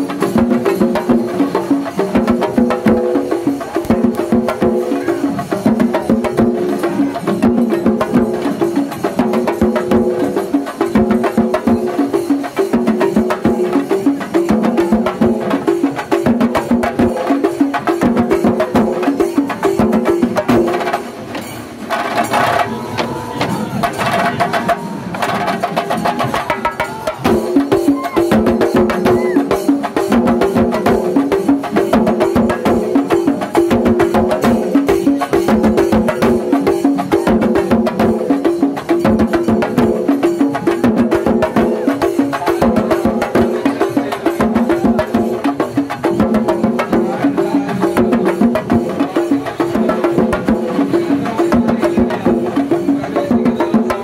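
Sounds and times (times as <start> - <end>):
fast dense drumming: 21.9 - 54.0.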